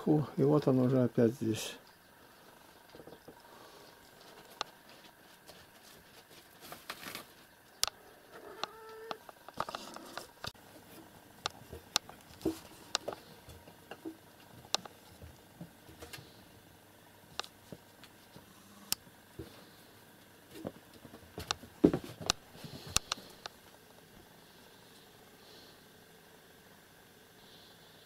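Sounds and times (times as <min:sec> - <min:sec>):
cats moving on furniture: 0:20.5 - 0:23.4.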